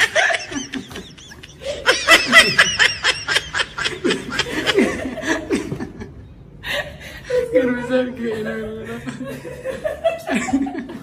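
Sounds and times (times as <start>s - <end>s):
woman laughing: 0.0s - 6.0s.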